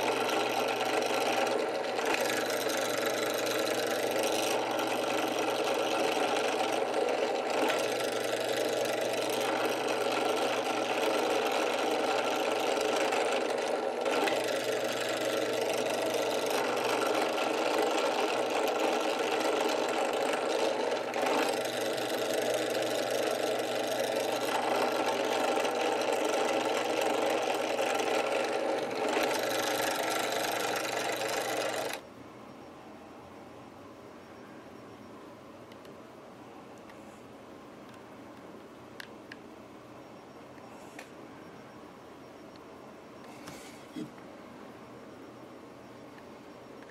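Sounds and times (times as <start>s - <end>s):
drill bit drilling wood: 0.0s - 32.0s
drill press motor running: 0.0s - 32.0s.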